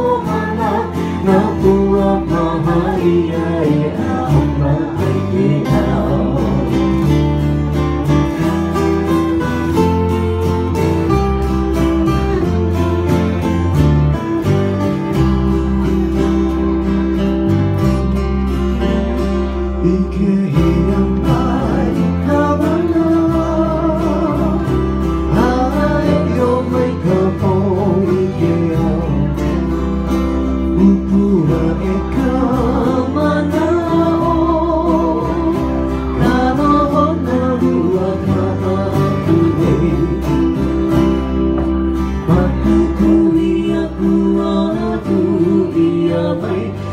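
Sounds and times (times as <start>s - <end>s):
man singing: 0.0s - 7.5s, 18.7s - 46.9s
acoustic guitar and ukuleles strumming: 0.0s - 46.9s.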